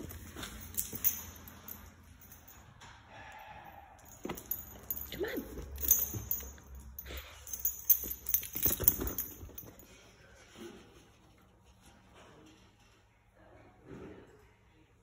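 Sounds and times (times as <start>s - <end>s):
dog collar tags jingling: 0.0s - 2.9s, 4.0s - 10.0s.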